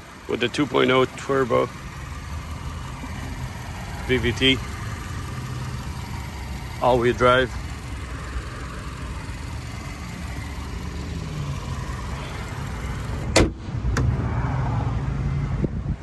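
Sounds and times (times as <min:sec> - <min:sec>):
car engine idling: 0:00.0 - 0:14.2
car hood slammed shut: 0:13.3 - 0:14.2.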